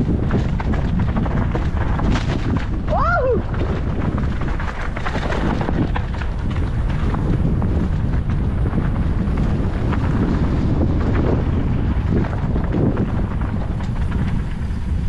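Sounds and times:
wind on microphone: 0:00.0 - 0:15.0
bike clicks and knocks: 0:03.5 - 0:15.0.

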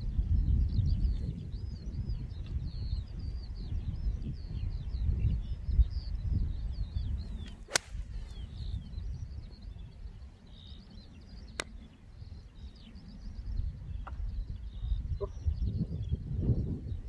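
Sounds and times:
wind rumble on microphone: 0:00.0 - 0:17.0
birds chirping: 0:00.3 - 0:17.0
golf club striking ball: 0:07.5 - 0:08.4.

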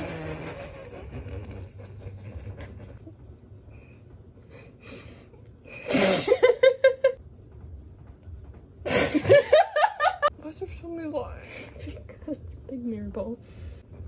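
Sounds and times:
woman giggling: 0:00.0 - 0:03.3, 0:06.0 - 0:07.2.

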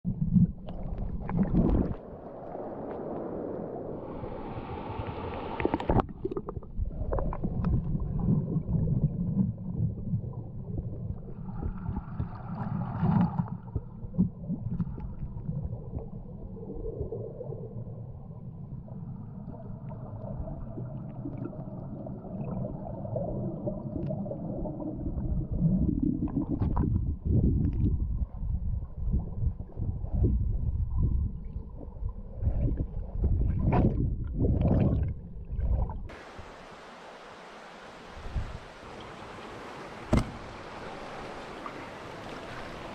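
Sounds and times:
muffled underwater river rumbling: 0:00.0 - 0:36.9, 0:37.8 - 0:42.9.

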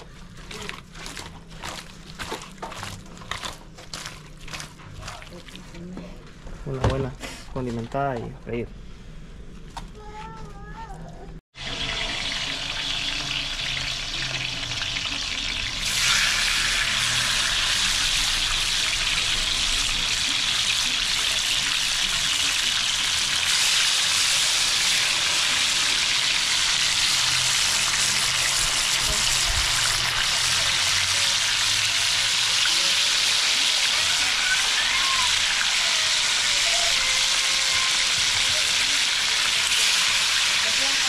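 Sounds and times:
fish frying in hot oil: 0:11.6 - 0:41.0.

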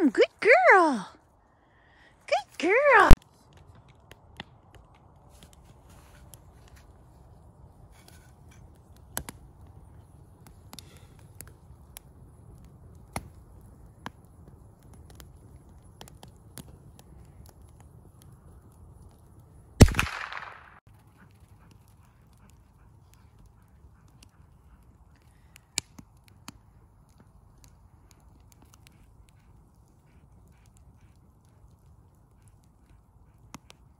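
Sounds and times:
wood fire crackling: 0:02.9 - 0:33.9
sharp pops of fire: 0:09.0 - 0:09.4, 0:13.0 - 0:17.6, 0:19.8 - 0:20.9, 0:25.3 - 0:26.6
loud sharp crack: 0:19.8 - 0:20.8.

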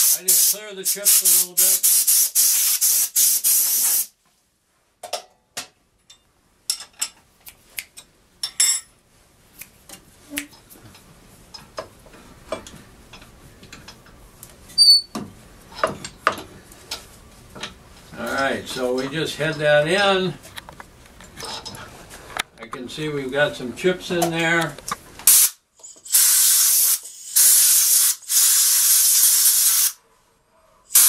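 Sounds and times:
compressed air blasts: 0:00.0 - 0:04.1, 0:25.2 - 0:30.0.

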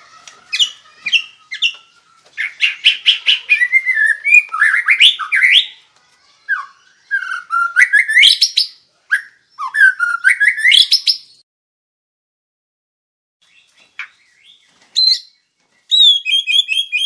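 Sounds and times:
bird singing whistled phrases: 0:02.4 - 0:05.8, 0:06.5 - 0:11.4, 0:13.5 - 0:17.0.

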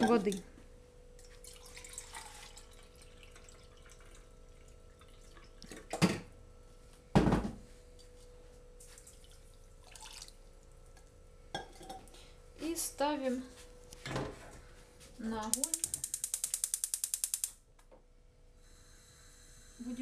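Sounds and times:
water trickling into plastic cup: 0:01.3 - 0:05.7, 0:08.9 - 0:10.4
water pouring into saucepan: 0:01.4 - 0:05.7, 0:09.0 - 0:10.4
hard knocks on counter: 0:07.2 - 0:07.6.

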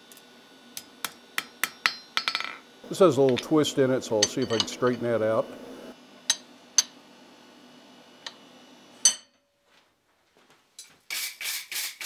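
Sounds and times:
hammer striking metal: 0:01.0 - 0:02.6, 0:04.2 - 0:05.0.

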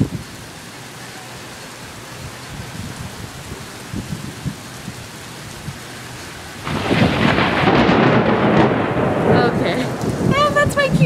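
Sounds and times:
heavy rain falling: 0:00.0 - 0:11.0
thunderclap rumbling: 0:02.6 - 0:11.0.

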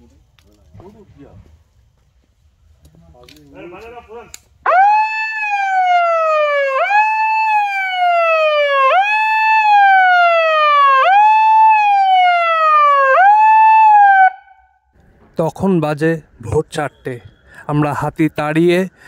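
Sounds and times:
electronic siren wailing: 0:04.7 - 0:14.6.

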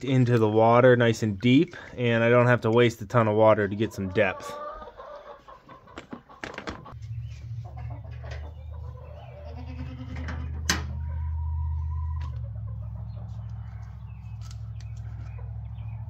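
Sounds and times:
chickens clucking: 0:01.6 - 0:16.0
goat bleating: 0:09.2 - 0:10.7.

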